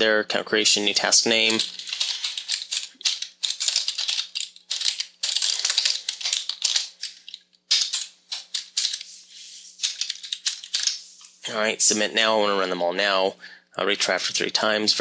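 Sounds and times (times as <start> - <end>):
typing on computer keyboard: 1.3 - 9.1, 9.8 - 11.0.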